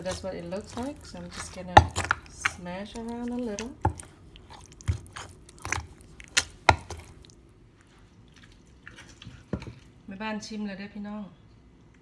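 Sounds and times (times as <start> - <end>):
pestle knocking in mortar: 0.0 - 2.7, 4.8 - 7.1
pestle squishing wet mix: 0.0 - 10.0.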